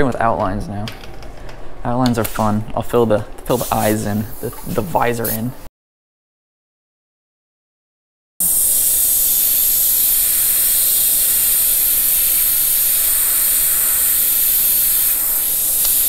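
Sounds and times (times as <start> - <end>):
airbrush hissing: 3.5 - 5.5, 8.4 - 16.0.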